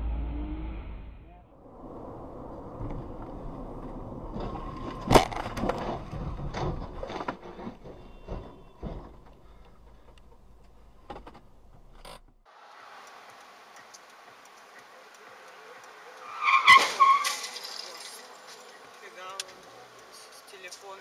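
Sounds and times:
car road noise: 0.0s - 21.0s
car crash bang: 4.3s - 7.4s, 16.5s - 18.2s
metal scraping on asphalt: 16.2s - 18.8s.

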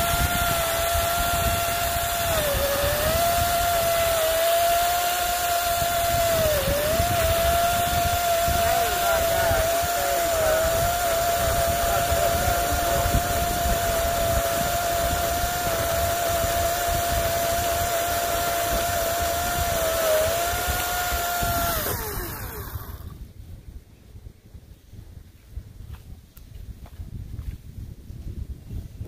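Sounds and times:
chainsaw cutting through log: 0.0s - 23.2s.

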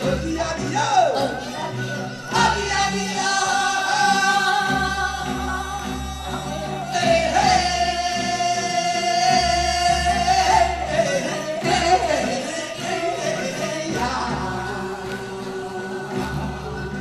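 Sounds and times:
amplified folk-style singing: 0.0s - 17.0s.

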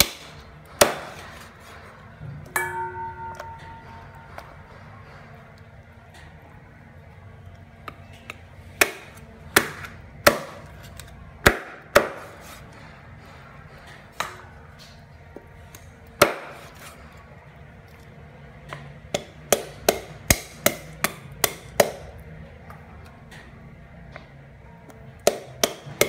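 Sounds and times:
cleaver chopping on wooden board: 0.0s - 1.2s, 8.8s - 10.6s.

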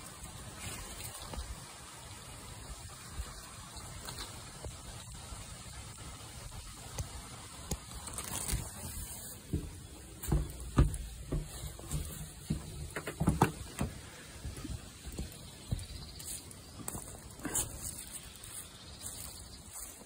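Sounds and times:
footsteps on wooden boards: 9.0s - 20.0s.

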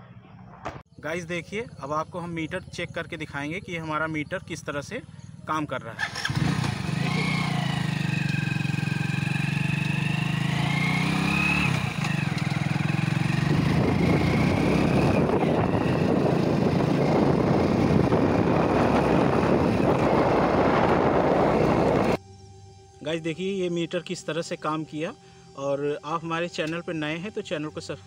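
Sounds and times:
motorcycle engine accelerating: 6.0s - 22.2s
wind noise on microphone: 10.6s - 22.2s.

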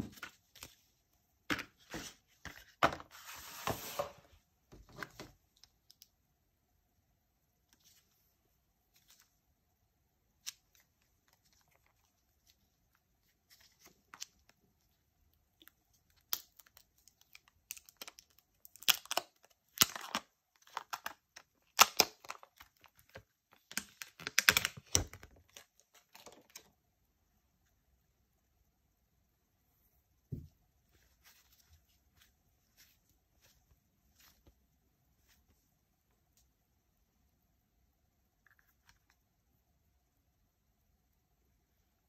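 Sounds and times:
wrapping crinkling and tearing: 16.1s - 26.7s.

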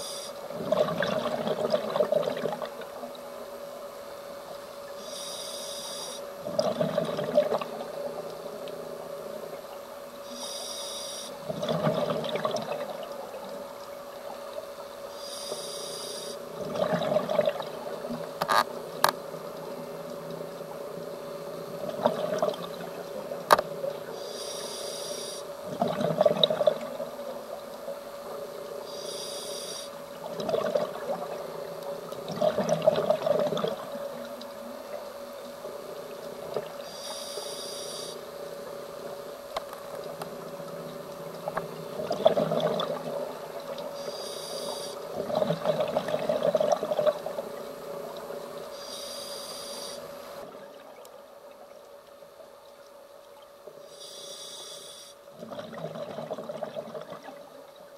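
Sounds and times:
regulator hiss on inhale: 0.0s - 0.4s, 5.0s - 6.3s, 10.2s - 11.4s, 15.1s - 16.6s, 24.1s - 25.6s, 28.5s - 30.0s, 36.8s - 39.2s, 43.9s - 45.1s, 48.6s - 50.4s, 53.8s - 55.3s
steady hum: 0.0s - 57.9s
bubbles bursting on exhale: 0.5s - 2.7s, 11.5s - 13.1s, 16.6s - 18.2s, 25.7s - 27.0s, 30.2s - 31.4s, 32.2s - 33.8s, 41.9s - 43.2s, 45.1s - 47.4s, 55.4s - 57.4s.

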